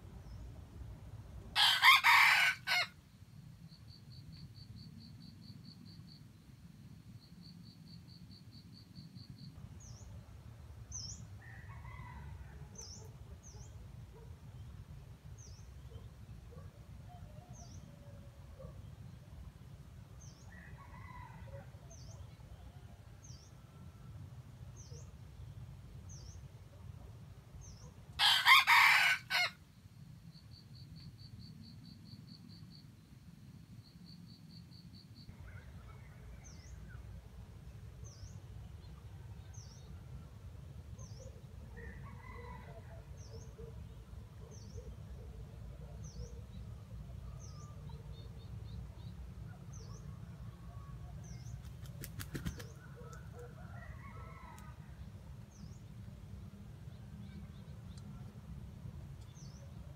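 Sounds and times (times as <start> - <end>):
rooster crowing: 1.6 - 3.0, 28.2 - 29.6.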